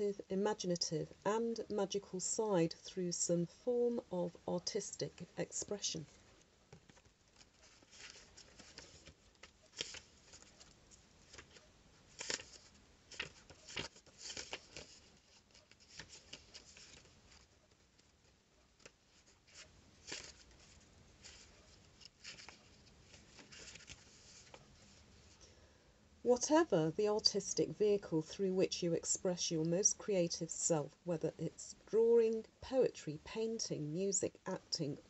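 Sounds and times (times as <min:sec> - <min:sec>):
paper cards rustling and clicking: 0:06.4 - 0:25.1.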